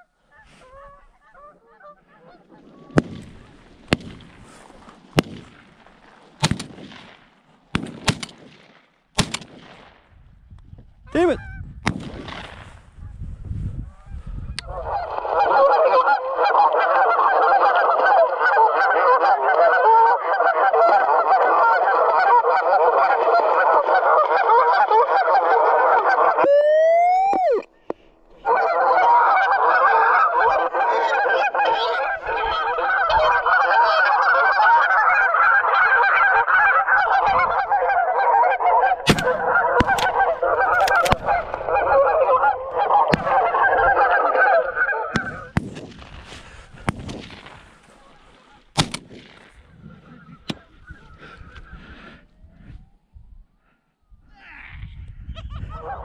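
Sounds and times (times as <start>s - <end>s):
geese honking: 0.0s - 5.0s, 13.9s - 45.6s
sharp cracks: 2.7s - 10.2s, 11.8s - 12.8s, 39.0s - 44.0s, 45.2s - 49.7s.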